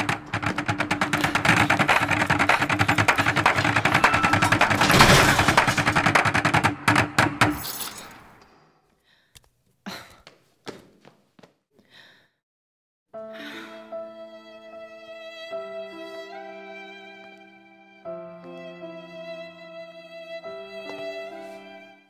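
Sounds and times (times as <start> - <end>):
driving percussion: 0.0 - 7.6.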